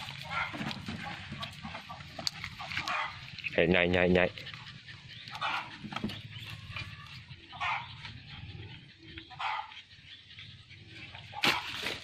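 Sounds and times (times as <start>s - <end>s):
dog barking: 7.5s - 7.9s.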